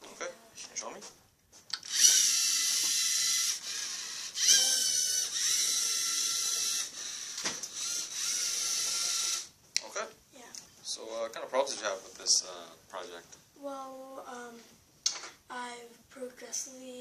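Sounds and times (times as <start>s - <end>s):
robot electric motors whining: 1.8s - 9.5s.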